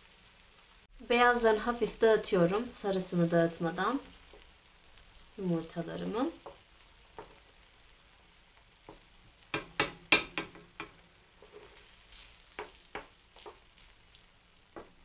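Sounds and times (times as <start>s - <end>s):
faint sizzle: 0.0s - 15.0s
wooden spoon knocking in pan: 6.4s - 7.5s, 8.8s - 11.9s, 12.5s - 13.7s, 14.7s - 15.0s.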